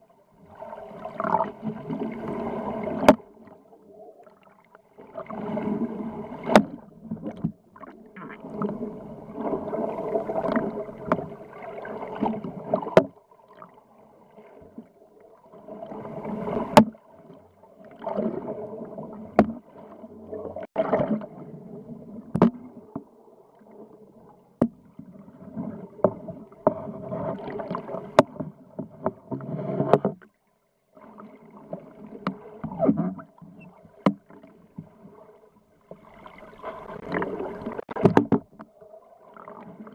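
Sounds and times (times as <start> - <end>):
underwater machinery hum: 0.0 - 39.9
rushing water: 0.4 - 3.5, 7.8 - 13.7, 35.9 - 39.9.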